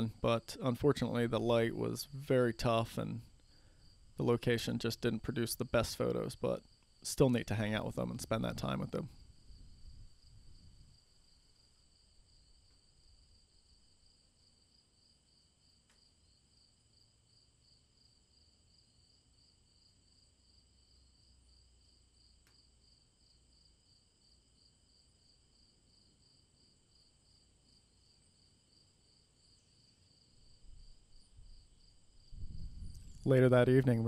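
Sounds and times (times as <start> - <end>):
soft low rumble: 32.3 - 33.2.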